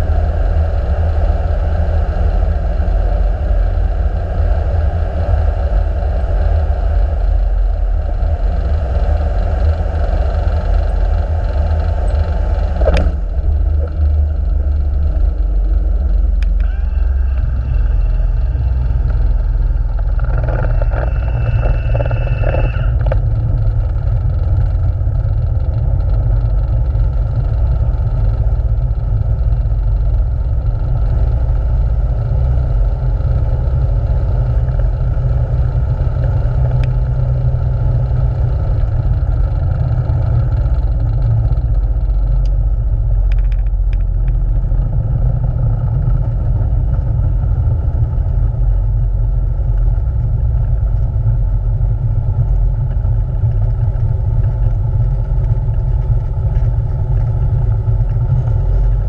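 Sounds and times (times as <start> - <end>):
light aircraft engine running: 0.0 - 59.0
wheel rumble on runway: 0.0 - 59.0
clicks and rattles: 43.2 - 44.6.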